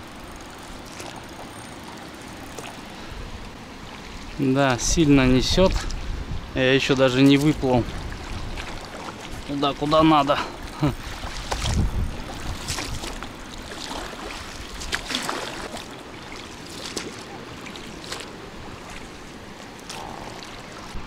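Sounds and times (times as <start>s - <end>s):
oar splashes: 0.0s - 4.4s, 6.9s - 21.0s
water lapping: 0.0s - 21.0s
low wind rumble on microphone: 2.9s - 15.2s
wind noise: 4.8s - 13.7s.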